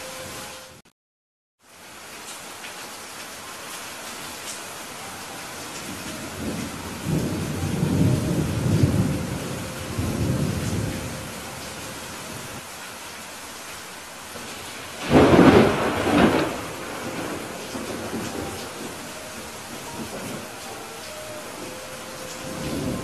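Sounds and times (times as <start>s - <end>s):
steady rain: 0.0s - 0.8s, 1.6s - 23.0s
thunder rumbling: 5.8s - 12.6s, 14.4s - 23.0s
loud thunderclap: 15.0s - 19.1s.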